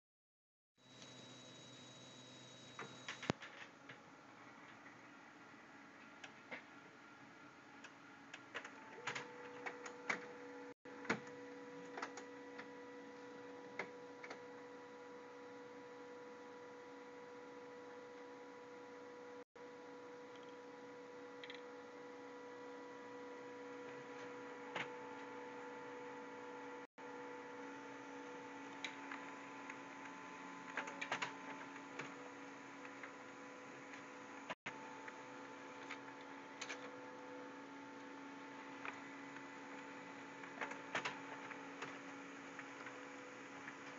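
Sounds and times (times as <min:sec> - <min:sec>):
printer motor hum and whine: 0:00.8 - 0:43.9
printer clicks and clacks: 0:07.8 - 0:10.4, 0:23.9 - 0:25.3, 0:28.6 - 0:37.0, 0:38.8 - 0:43.9.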